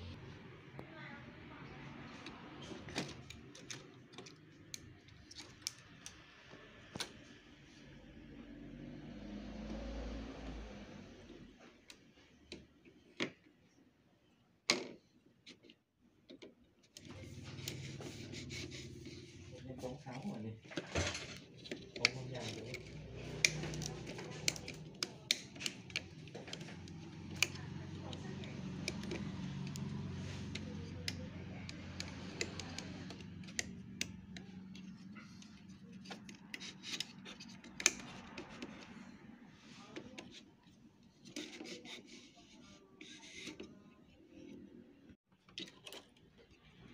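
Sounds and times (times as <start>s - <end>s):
light clicks of plastic parts: 2.2s - 7.4s, 20.0s - 43.8s.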